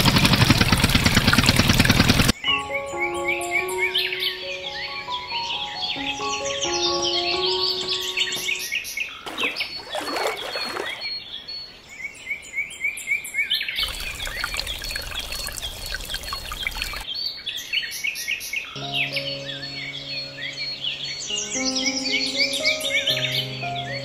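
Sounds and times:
birds chirping: 2.3 - 12.8, 13.6 - 17.4, 18.7 - 24.0
music notes: 2.4 - 8.7, 18.8 - 24.0
water splashing: 9.2 - 11.2, 13.8 - 17.0
water pouring into pot: 9.3 - 11.0, 13.8 - 17.0.

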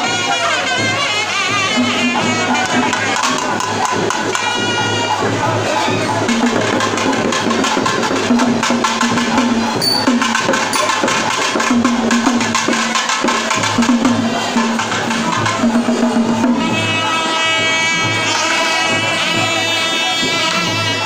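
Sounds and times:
trumpets and clarinets holding notes: 0.0 - 3.6, 4.2 - 6.0, 9.8 - 11.2, 16.5 - 21.0
drums beating fast rhythm: 0.0 - 21.0.

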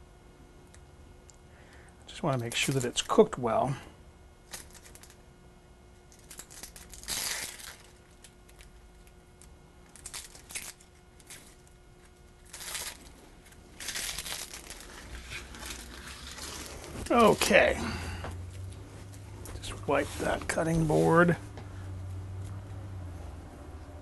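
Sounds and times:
onion skin crackling and tearing: 6.2 - 17.6.

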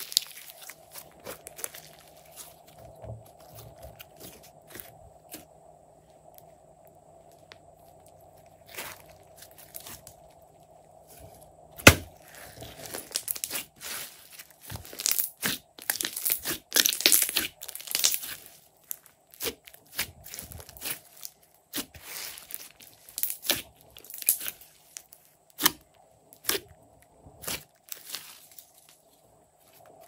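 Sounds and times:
slime squished by hand: 0.0 - 5.5.

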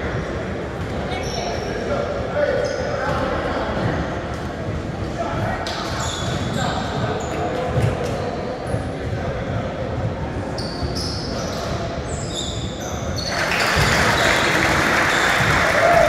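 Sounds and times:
sneakers squeaking: 1.0 - 1.8, 2.6 - 3.2, 5.9 - 9.1, 10.4 - 15.8
crowd chatter echoing: 12.8 - 16.0.

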